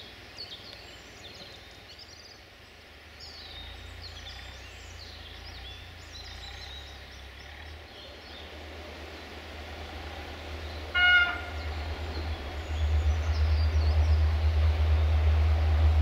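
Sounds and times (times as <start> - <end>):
birds chirping faintly: 0.0 - 16.0
locomotive engine rumble: 3.1 - 16.0
train horn blast: 10.8 - 16.0.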